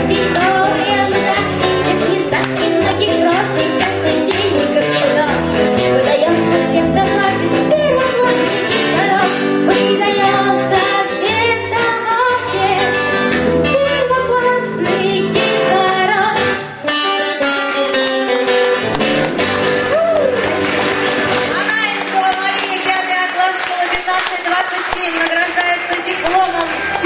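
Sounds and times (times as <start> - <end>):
girl singing into microphone: 0.0 - 17.2
acoustic guitar: 0.0 - 27.0.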